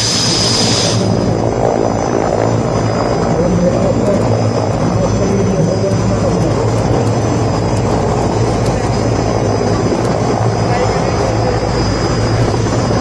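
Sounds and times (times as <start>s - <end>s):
helicopter rotor drone: 0.0s - 13.0s.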